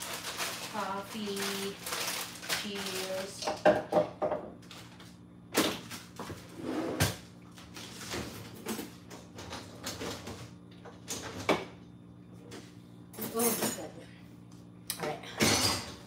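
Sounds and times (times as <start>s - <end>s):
steady low hum: 0.0s - 16.0s
utensils clattering: 15.4s - 16.0s.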